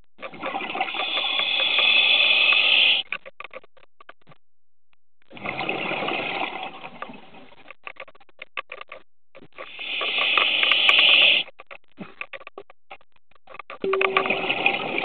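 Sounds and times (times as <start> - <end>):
bubbles crackling: 0.2 - 4.2, 5.3 - 8.7, 9.4 - 15.0
diver regulator breathing: 0.8 - 3.1, 9.6 - 11.5.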